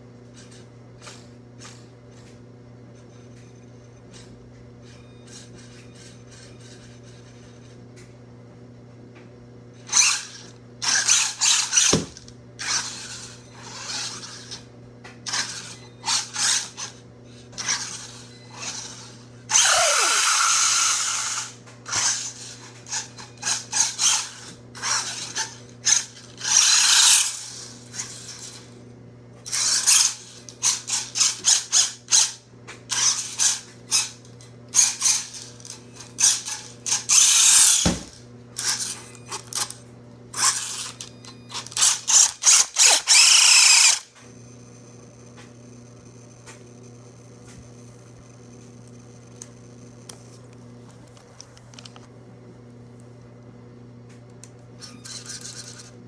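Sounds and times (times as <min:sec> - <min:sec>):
low steady hum: 0:00.0 - 0:56.0
toy car motor and gears whirring: 0:00.4 - 0:02.2, 0:03.8 - 0:07.8, 0:09.8 - 0:28.8, 0:29.4 - 0:44.2, 0:54.8 - 0:56.0.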